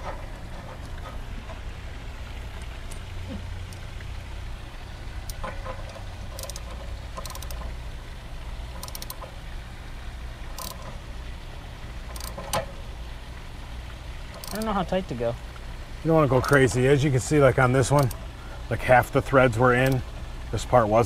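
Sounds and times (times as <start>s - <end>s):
steady low hum: 0.0s - 21.0s
ratchet wrench clicking: 6.3s - 7.7s, 8.8s - 9.2s, 10.6s - 10.9s, 12.1s - 12.6s, 14.3s - 14.7s, 17.9s - 18.2s.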